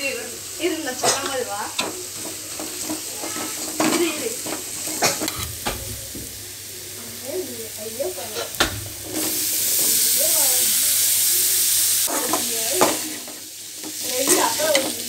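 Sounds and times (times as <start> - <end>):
food sizzling in a metal pan: 0.0 - 15.0
spatula scraping a pan: 1.0 - 6.1, 8.0 - 15.0.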